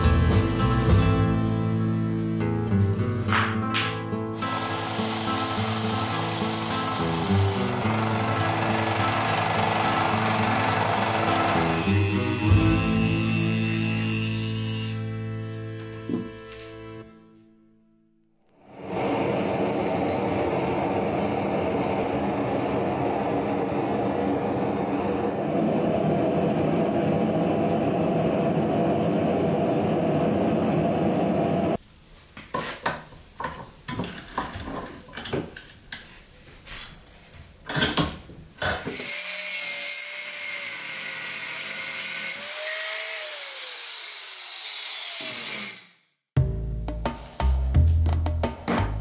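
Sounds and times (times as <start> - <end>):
angle grinder whining: 6.3 - 15.2, 38.8 - 46.0.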